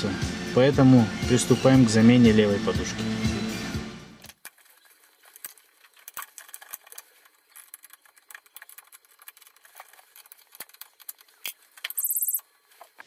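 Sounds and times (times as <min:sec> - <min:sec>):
hand tools clicking and rattling: 0:05.4 - 0:12.4.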